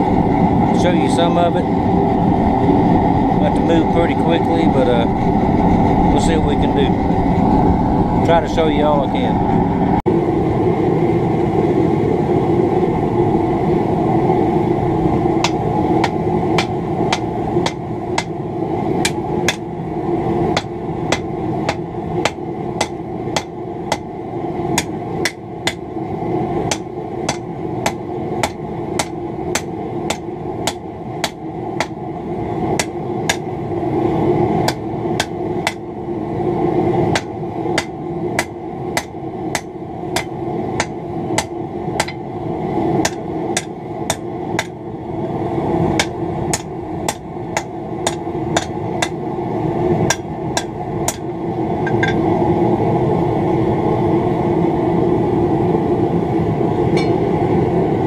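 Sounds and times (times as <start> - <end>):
steady background noise: 0.0 - 58.0
hammer striking metal on anvil: 15.4 - 18.4, 19.0 - 19.7, 20.6 - 24.1, 24.8 - 25.8, 26.7 - 32.0, 32.8 - 33.5, 34.7 - 35.8, 37.1 - 42.2, 43.0 - 44.8, 46.0 - 49.2, 50.1 - 51.2, 51.8 - 52.2, 57.0 - 57.2.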